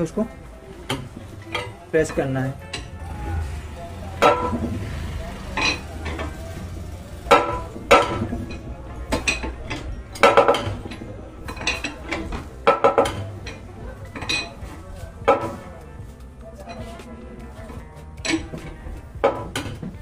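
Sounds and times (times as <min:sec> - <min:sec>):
hydraulic press metal clanks: 0:04.1 - 0:06.6, 0:07.2 - 0:14.6, 0:17.6 - 0:20.0.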